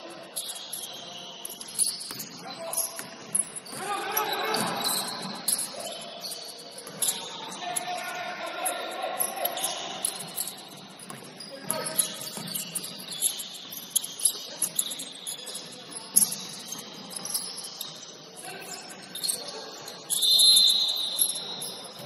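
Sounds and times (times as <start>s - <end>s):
shoes squeaking on gym court: 0.0s - 22.0s
referee whistle: 20.1s - 22.0s.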